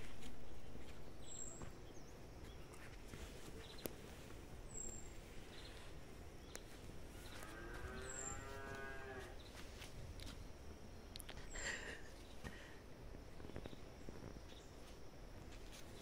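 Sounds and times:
bird chirping: 0.0 - 9.6
cow mooing: 7.4 - 9.3.

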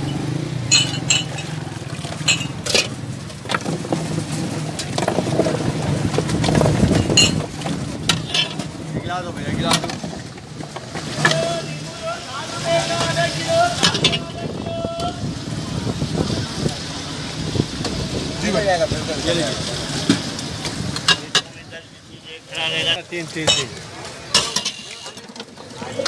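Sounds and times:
glass mugs and pots clinking: 0.0 - 3.0, 7.0 - 7.5, 23.4 - 23.7, 24.3 - 25.4
traffic: 0.0 - 26.0.

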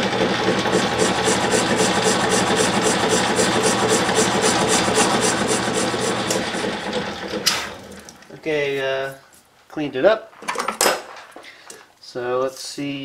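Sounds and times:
metal lathe turning: 0.0 - 8.2
motor hum: 0.0 - 8.3.

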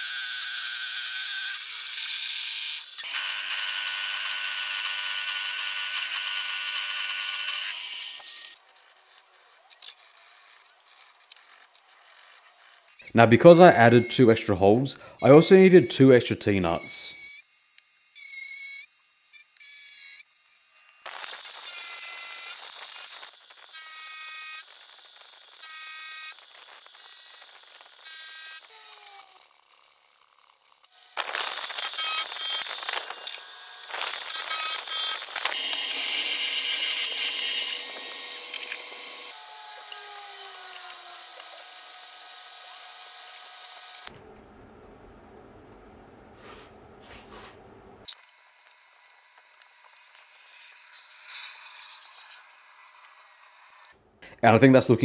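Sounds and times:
milling machine cutting steel: 31.2 - 41.8.

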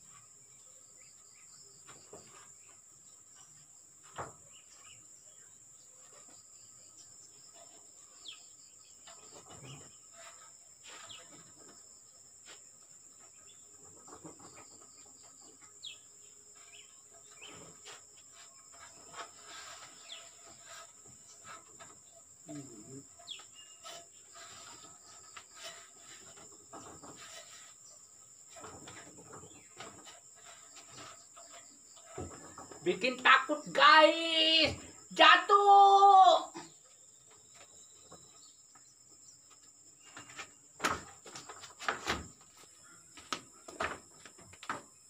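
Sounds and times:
bird chirps: 22.5 - 24.7
footsteps on wood and ladder: 23.2 - 33.2, 37.2 - 45.0.

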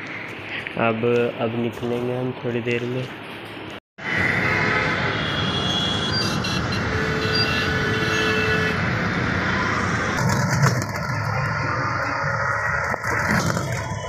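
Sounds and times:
rickshaw rumble and rattle: 9.8 - 14.0.

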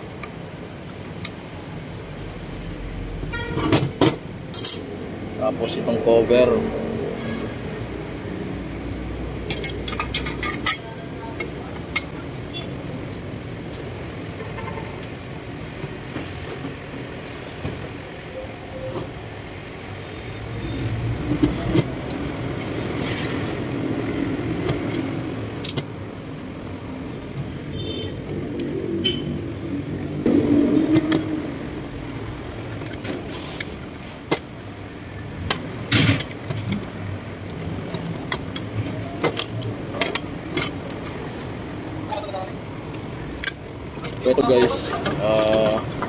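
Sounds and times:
low rumble of traffic: 0.0 - 46.0
metal parts clinking: 4.5 - 5.0.

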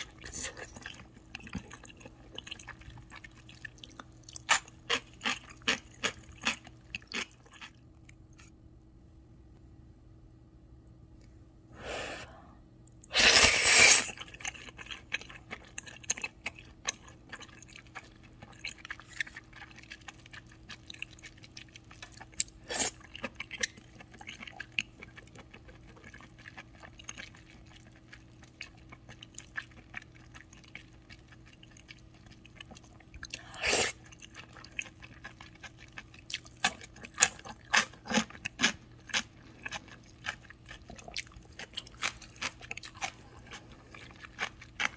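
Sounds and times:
wet chewing: 0.0 - 8.5, 13.6 - 44.9
slurping noodles: 13.1 - 14.3.

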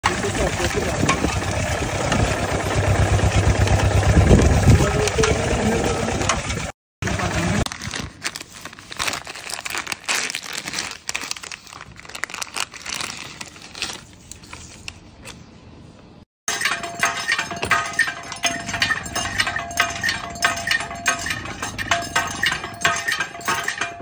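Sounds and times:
wrapper crinkling and tearing: 7.6 - 15.4.

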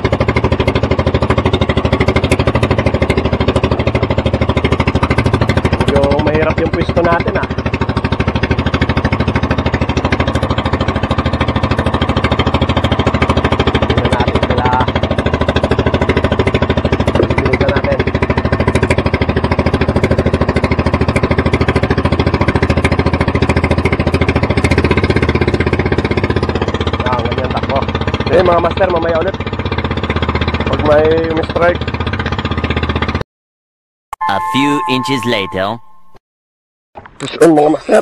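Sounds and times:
boat engine throbbing: 0.0 - 33.2.

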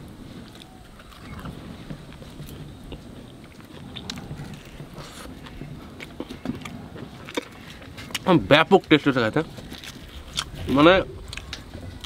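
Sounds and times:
person chewing: 2.5 - 8.3, 9.5 - 12.0.

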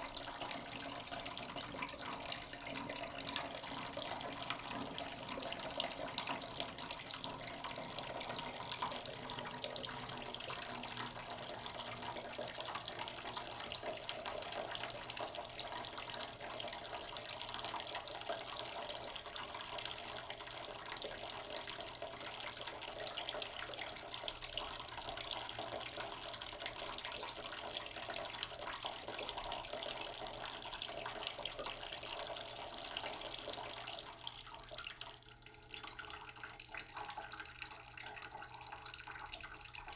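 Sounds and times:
running water: 0.0 - 16.9.

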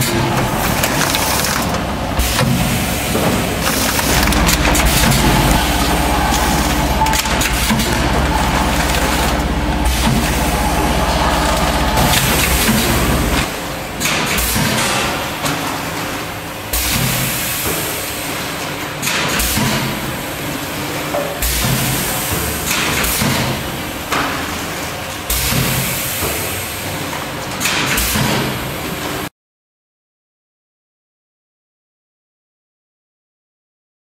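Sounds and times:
loud mechanical bursts: 0.0 - 15.0
machine hum: 0.0 - 16.6.

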